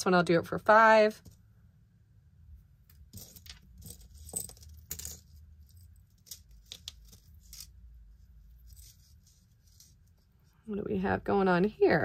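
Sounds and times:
metal jewelry clinking: 0:02.9 - 0:07.8, 0:08.4 - 0:10.0.

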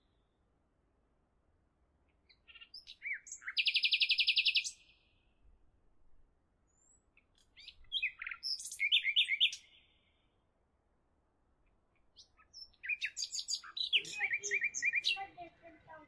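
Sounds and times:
birds chirping: 0:12.0 - 0:16.0.

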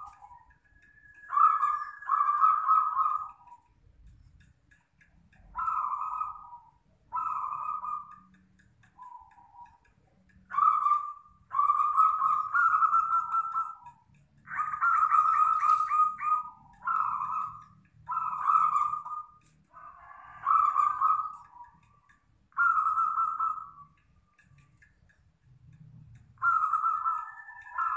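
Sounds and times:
doves cooing: 0:00.0 - 0:03.7, 0:05.4 - 0:08.3, 0:10.5 - 0:24.0, 0:26.2 - 0:27.9.

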